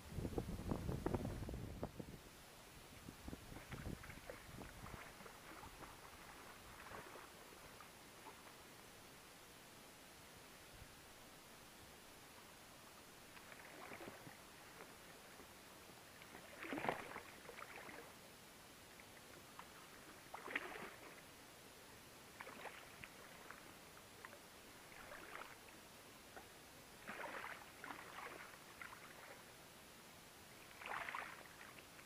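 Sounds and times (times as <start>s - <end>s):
fish splashing in water: 3.6s - 8.5s, 13.4s - 14.3s, 16.3s - 18.0s, 20.3s - 21.2s, 22.4s - 23.6s, 24.9s - 25.6s, 27.0s - 29.3s, 30.7s - 31.8s.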